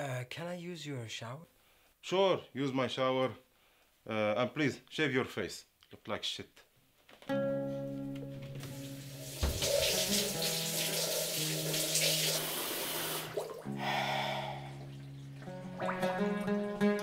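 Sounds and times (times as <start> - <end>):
soft background music: 7.3 - 17.0
water running from tap: 8.6 - 13.7.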